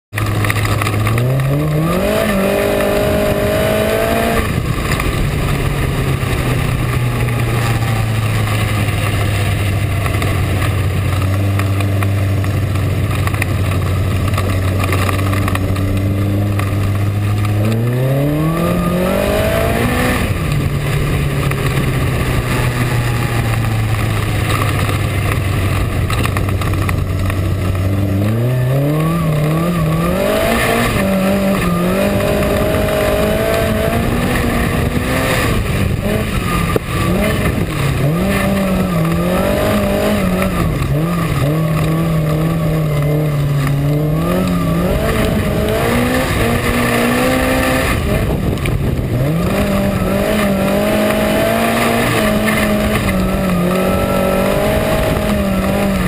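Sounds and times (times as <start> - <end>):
race car engine revving: 0.1 - 56.0
wind and track noise: 0.1 - 56.0.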